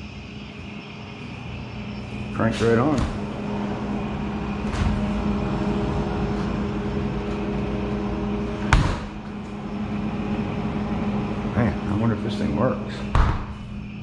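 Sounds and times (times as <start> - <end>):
freezer compressor humming: 0.0 - 14.0.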